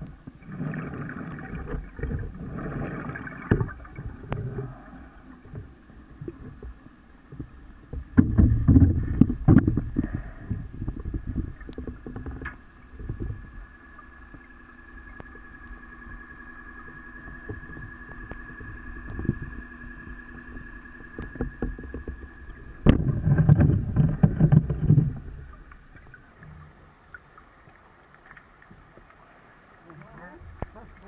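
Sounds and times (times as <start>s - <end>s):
underwater exhaled bubbles rumbling: 0.0s - 26.8s
high motor whine: 13.6s - 23.0s.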